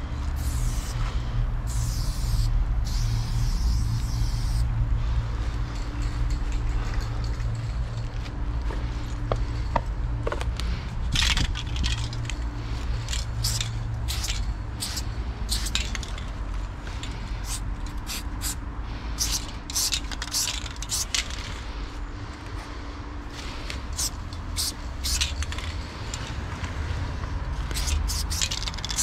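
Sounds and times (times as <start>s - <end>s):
low steady rumble: 0.0s - 29.0s
spray paint can hissing: 0.3s - 4.7s, 13.0s - 16.1s, 17.1s - 18.6s, 19.2s - 21.5s, 23.3s - 26.2s, 27.6s - 29.0s.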